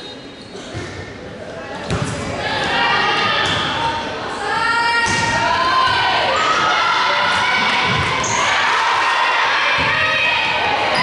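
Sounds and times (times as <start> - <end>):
crowd shouting and cheering: 2.3 - 11.0.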